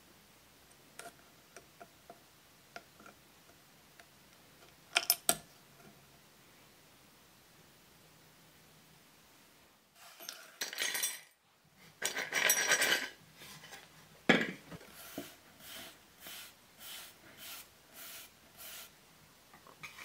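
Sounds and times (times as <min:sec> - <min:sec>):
small metal parts clinking: 0:10.1 - 0:11.4, 0:12.0 - 0:13.2.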